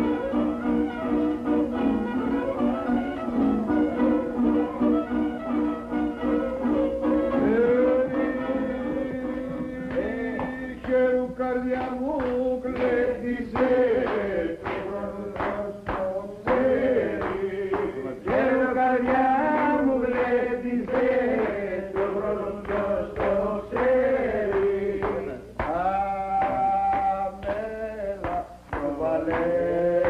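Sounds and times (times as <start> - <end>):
hand clapping: 0.1 - 8.2, 9.1 - 30.0
men singing folk song: 7.3 - 30.0.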